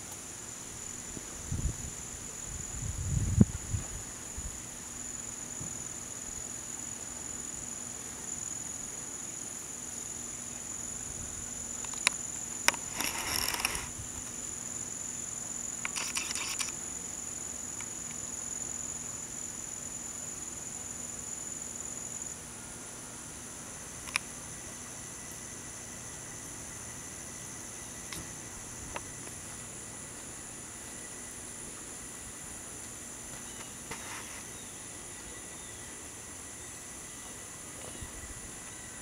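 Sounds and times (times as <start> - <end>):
insects trilling: 0.0 - 39.0
rasping insect bursts: 12.6 - 14.1, 15.8 - 16.8.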